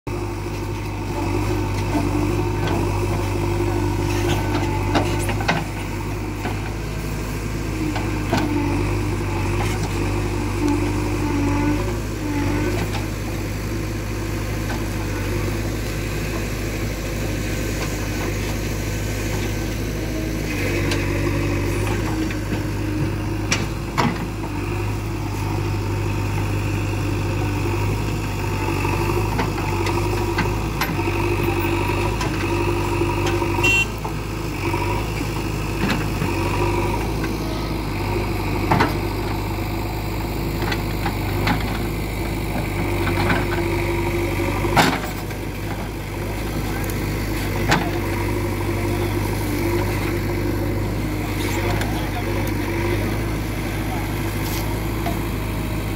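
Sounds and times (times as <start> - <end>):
diesel engine running: 0.1 - 55.9.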